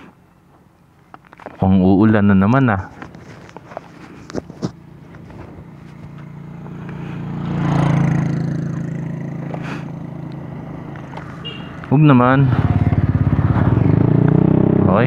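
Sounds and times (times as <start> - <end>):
vehicle passing: 4.8 - 15.0.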